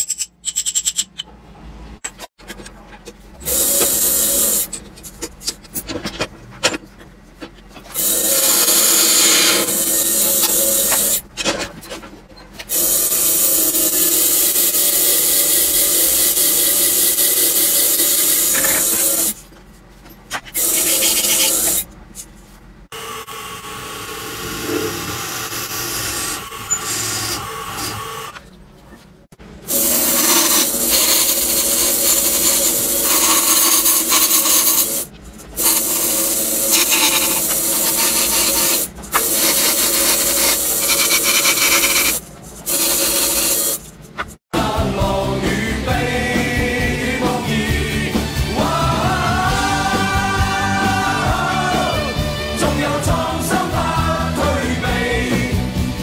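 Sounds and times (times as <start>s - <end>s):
lathe cutting wood: 8.0s - 11.2s, 20.6s - 21.8s, 23.0s - 28.4s, 29.7s - 43.8s.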